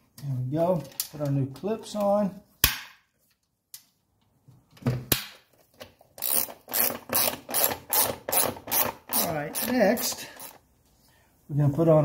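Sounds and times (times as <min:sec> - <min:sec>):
ratchet wrench clicking: 0:06.2 - 0:10.6.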